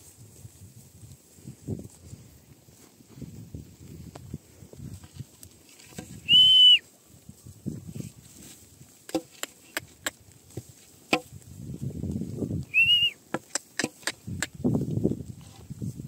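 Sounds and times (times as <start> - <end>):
short high whistles: 6.2 - 6.8, 12.7 - 13.2
sheep tearing and chewing grass: 6.9 - 12.6
sharp clicks: 13.4 - 14.6.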